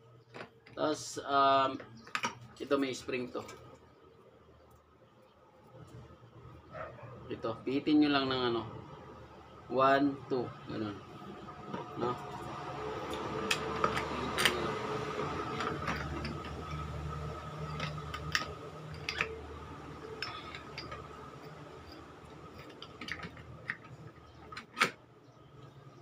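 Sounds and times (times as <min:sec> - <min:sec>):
metal parts clicking and clinking: 0:13.1 - 0:25.0.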